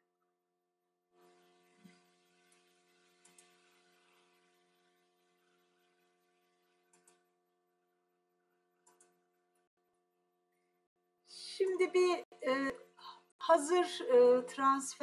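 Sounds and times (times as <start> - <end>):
faint clicks: 3.2 - 3.6, 6.9 - 7.2, 8.8 - 9.2.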